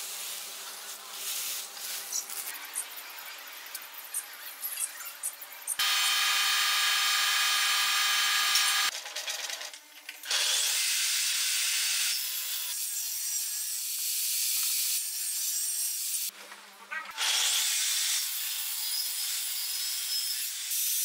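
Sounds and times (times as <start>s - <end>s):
power tool motor whining: 5.8s - 8.9s
table saw cutting wood: 5.8s - 8.9s, 10.3s - 16.2s, 17.2s - 21.0s.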